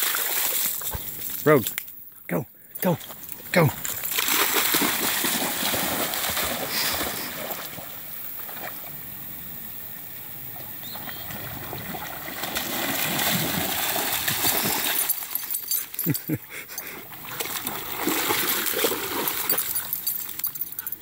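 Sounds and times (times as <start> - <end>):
dog splashing through water: 0.0 - 1.4, 3.7 - 8.9, 11.0 - 16.0, 17.0 - 21.0.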